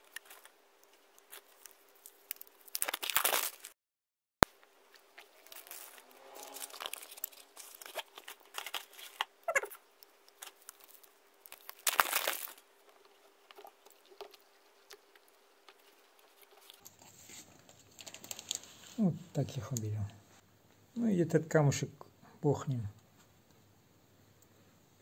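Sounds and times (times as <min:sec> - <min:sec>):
cardboard and paper rustling: 0:05.1 - 0:09.7, 0:15.8 - 0:19.0.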